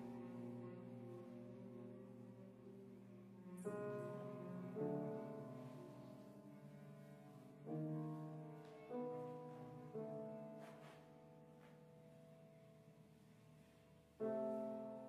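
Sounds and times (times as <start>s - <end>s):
piano chords ringing: 0.0s - 15.0s.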